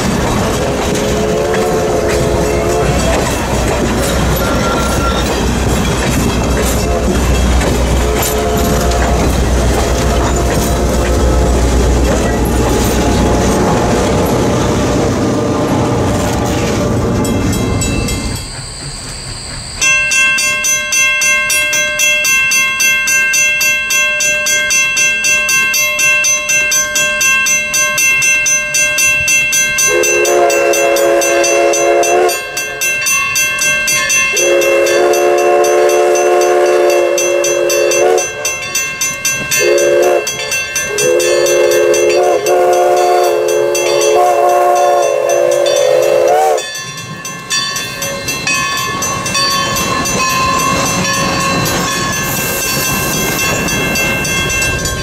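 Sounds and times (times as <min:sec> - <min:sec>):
crossing bell dinging: 0:00.0 - 0:55.0
train wheels clacking on rail: 0:00.0 - 0:55.0
wheel squeal: 0:00.8 - 0:13.6, 0:16.1 - 0:20.1
steam whistle blast: 0:00.9 - 0:03.2, 0:07.9 - 0:11.7, 0:29.9 - 0:32.4, 0:34.4 - 0:38.4, 0:39.6 - 0:40.2, 0:40.9 - 0:46.7.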